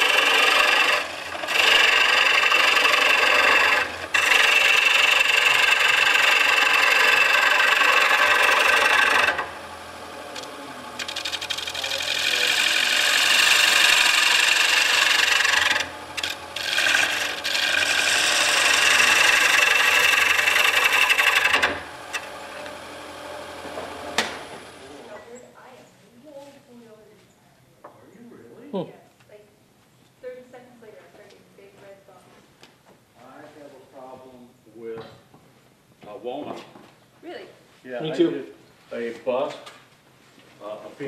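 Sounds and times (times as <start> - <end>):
gouge cutting wood on lathe: 0.0 - 25.1.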